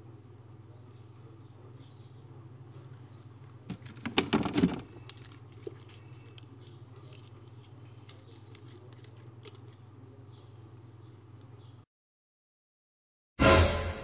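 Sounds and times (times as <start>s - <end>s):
refrigerator low hum: 0.0s - 11.8s
items rattling and knocking: 3.6s - 9.7s.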